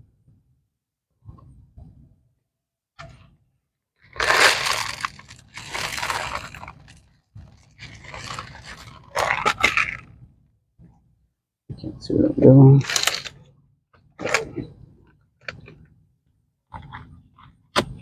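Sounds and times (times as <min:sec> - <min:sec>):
gritty soil pouring into pot: 0:04.1 - 0:07.0.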